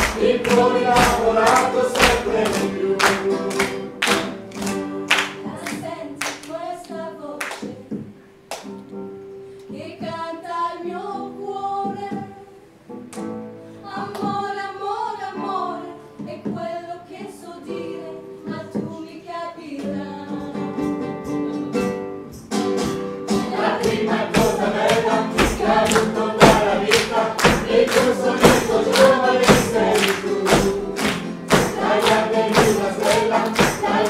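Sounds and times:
group of people singing: 0.0 - 8.1, 9.7 - 12.4, 13.8 - 20.7, 23.3 - 34.0
rhythmic handclaps: 0.0 - 8.9, 22.4 - 34.0
acoustic guitar: 0.0 - 34.0.

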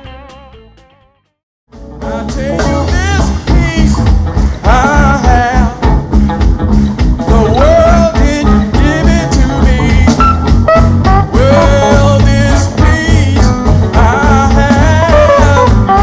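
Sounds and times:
gospel band bass and drums: 0.0 - 1.0, 1.7 - 16.0
man singing into a microphone: 2.0 - 5.9, 7.2 - 10.4, 11.2 - 16.0.

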